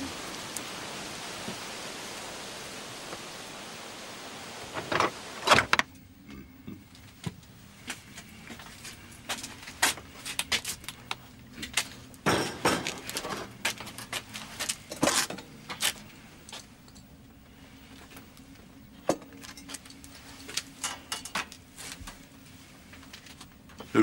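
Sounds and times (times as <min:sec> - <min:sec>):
rain-like outdoor noise: 0:00.0 - 0:24.0
door shutting: 0:04.7 - 0:05.9.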